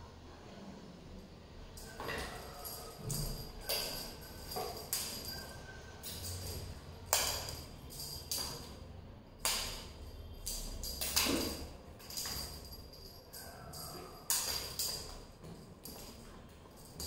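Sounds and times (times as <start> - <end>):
kittens landing on tiled floor: 9.4 - 12.8.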